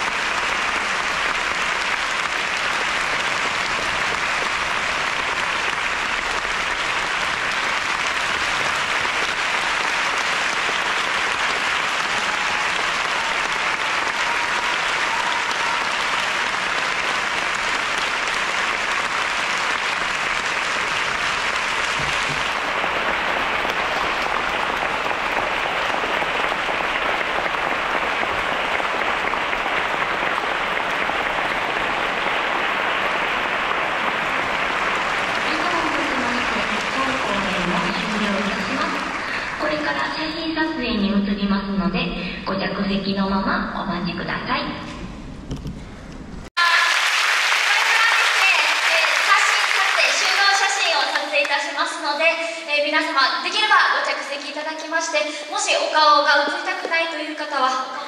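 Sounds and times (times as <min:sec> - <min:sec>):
audience applauding: 0:00.0 - 0:40.4, 0:46.6 - 0:51.6.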